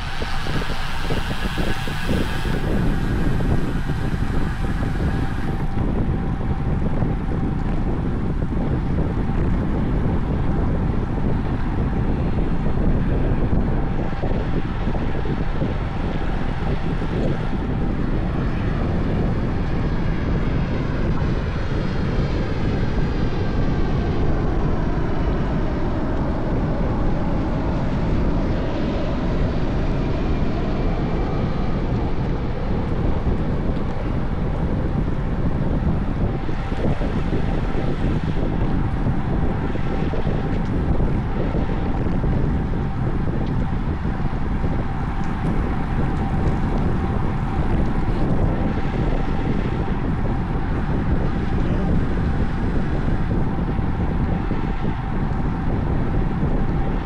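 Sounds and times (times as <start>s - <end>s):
faint engine-like tone: 0.0s - 57.0s
wind rushing over microphone: 0.0s - 57.0s.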